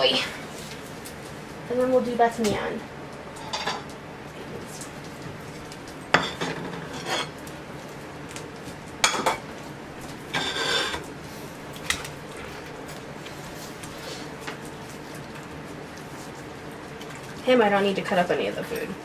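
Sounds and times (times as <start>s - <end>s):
glass plates scraping on counter: 6.2s - 7.3s, 10.3s - 11.0s.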